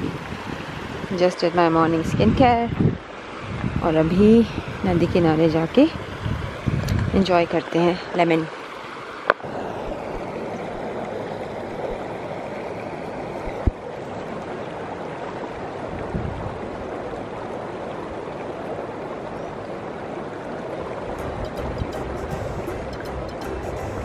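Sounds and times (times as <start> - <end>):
river rushing over stones: 6.5 - 15.9.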